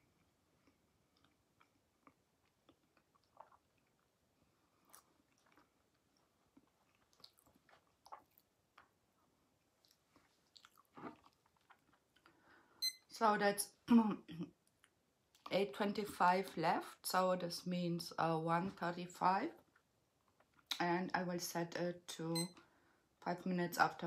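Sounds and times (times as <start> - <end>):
chewing with mouth clicks: 0.2 - 9.0, 9.6 - 12.4.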